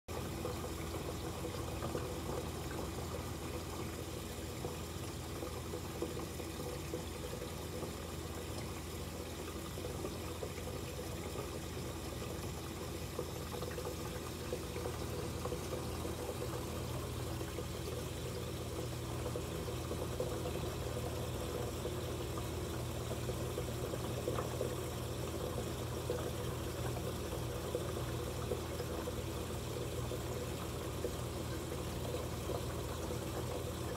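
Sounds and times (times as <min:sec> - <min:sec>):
low pump hum: 0:00.1 - 0:33.9
water flowing: 0:00.1 - 0:33.9.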